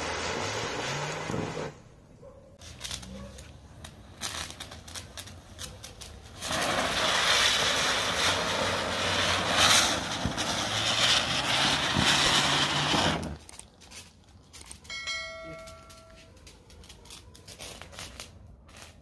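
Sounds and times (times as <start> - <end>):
firework hissing sparks: 0.0 - 1.9, 2.6 - 14.0
firework crackles: 0.0 - 19.0.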